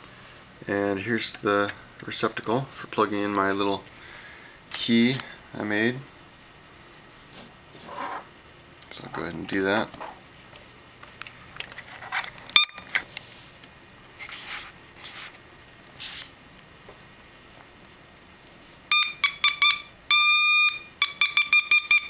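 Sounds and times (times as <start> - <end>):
buzzer beeping high tone: 18.9 - 22.0.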